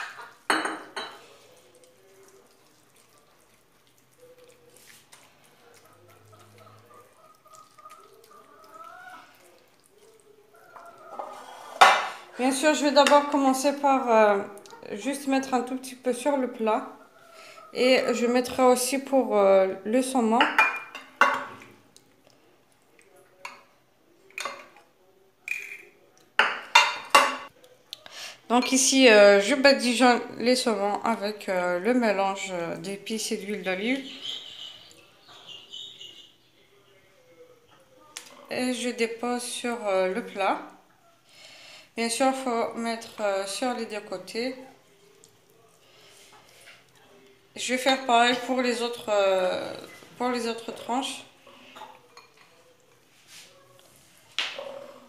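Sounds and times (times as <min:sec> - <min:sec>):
spatula clinking on glass bowl: 0:00.0 - 0:01.4
spoon stirring wet mix: 0:00.0 - 0:28.8, 0:30.6 - 0:55.0.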